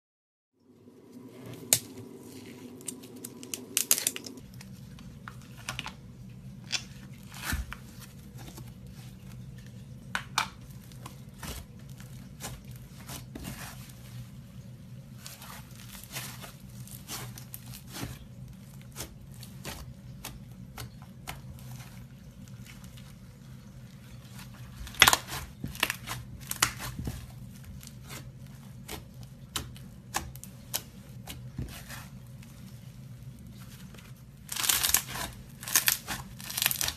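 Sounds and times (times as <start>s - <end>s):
slime crackling and popping: 34.4s - 36.9s.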